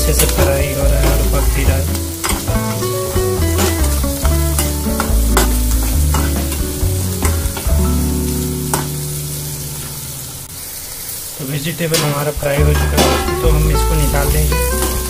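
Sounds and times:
music with deep bass line: 0.0s - 10.4s, 12.6s - 15.0s
vegetables sizzling in oil: 0.0s - 15.0s
spatula scraping and tapping pan: 3.4s - 7.7s.

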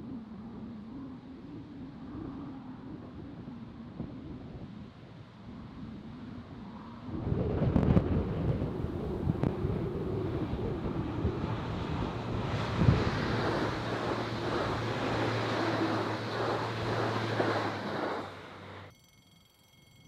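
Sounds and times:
steady low hum: 8.7s - 20.0s.

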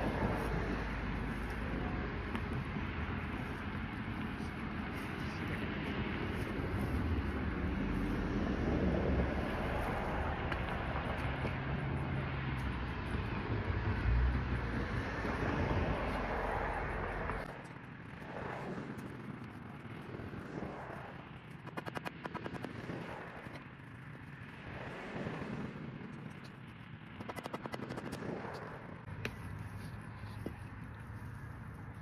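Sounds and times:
vehicle rumble: 0.0s - 32.0s
rapid clicking: 21.4s - 23.6s, 26.2s - 28.7s.

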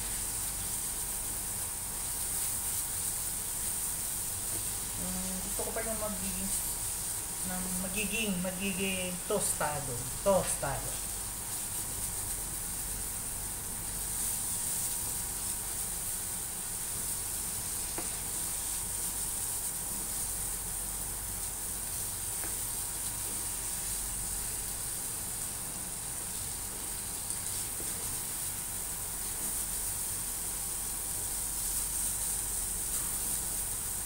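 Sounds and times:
spatula stirring in pan: 0.0s - 7.9s, 10.1s - 34.0s
meat sizzling in a frying pan: 0.0s - 34.0s.

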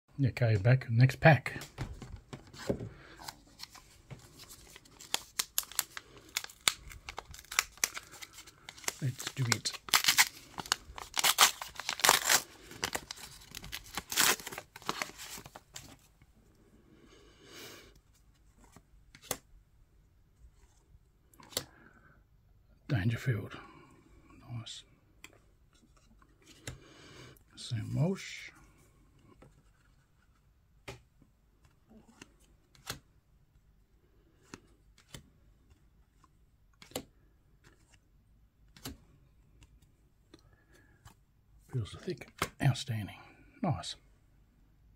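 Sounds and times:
wrapper tearing and crinkling: 4.6s - 15.6s.

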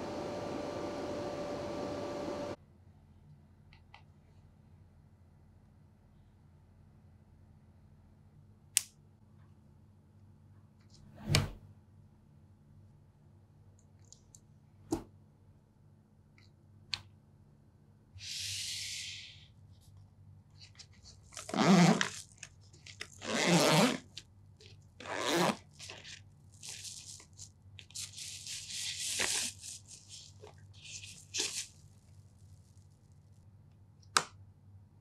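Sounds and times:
zipper: 21.3s - 24.2s, 25.0s - 31.8s
bag crinkling: 25.7s - 28.2s.

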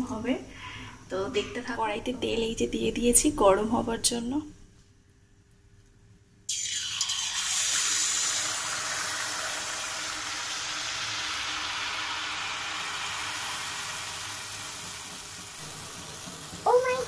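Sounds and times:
batter sizzling in hot oil: 6.5s - 17.0s.

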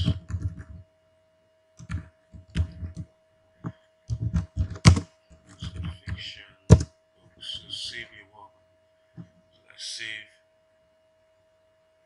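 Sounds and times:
keyboard typing: 0.0s - 0.8s, 1.8s - 6.9s.

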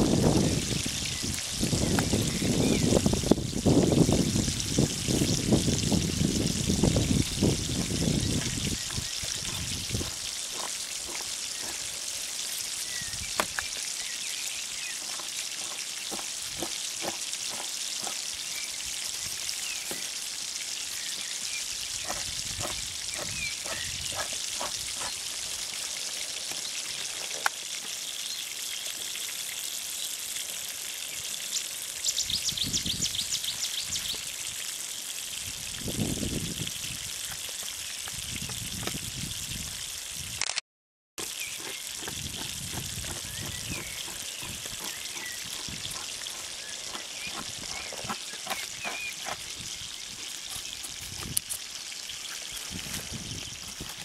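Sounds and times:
flowing water hiss: 0.0s - 40.4s, 41.2s - 54.0s.

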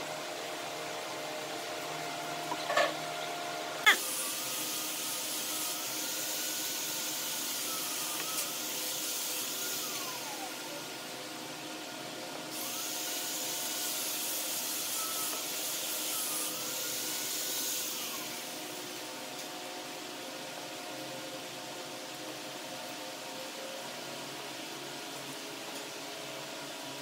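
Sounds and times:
machine hiss: 3.9s - 10.8s, 12.5s - 18.7s.

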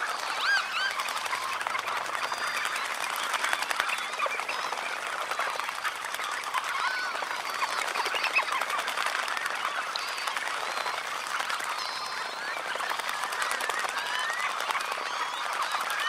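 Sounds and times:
birds splashing in water: 0.0s - 16.0s
dense chatter of bird calls: 0.0s - 16.0s.

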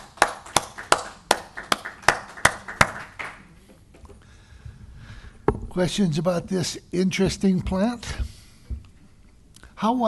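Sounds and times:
audience applauding: 0.0s - 3.5s
loud hand claps: 0.0s - 3.5s.

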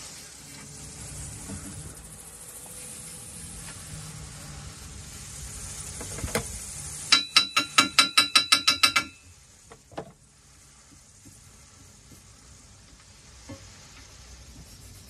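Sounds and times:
hammer rapping on steel: 7.1s - 9.2s.

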